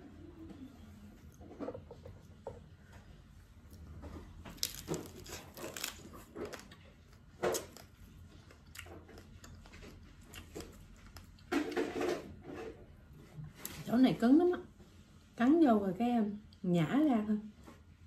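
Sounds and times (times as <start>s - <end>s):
chewing crab: 4.3s - 11.7s
crab shell crunching: 4.5s - 6.8s.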